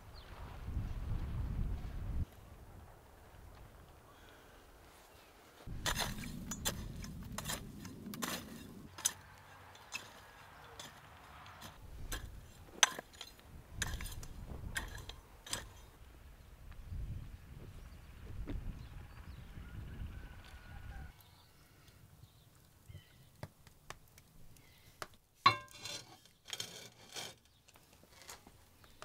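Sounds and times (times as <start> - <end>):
garden hoe chopping dry soil: 5.7 - 15.9.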